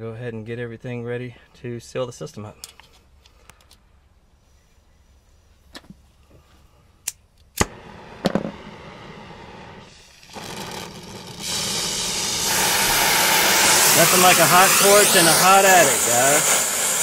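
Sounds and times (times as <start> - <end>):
torch flame hissing: 7.6 - 17.0
torch lighting with a pop: 7.6 - 17.0.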